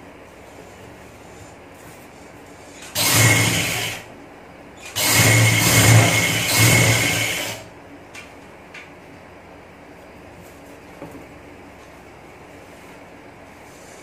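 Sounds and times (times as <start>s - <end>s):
electric sewing machine running: 2.8s - 4.1s, 4.8s - 7.7s.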